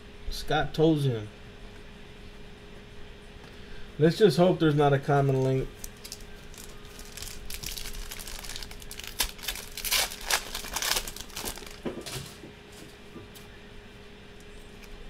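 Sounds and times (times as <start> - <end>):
foil wrapper crinkling: 5.1 - 12.4.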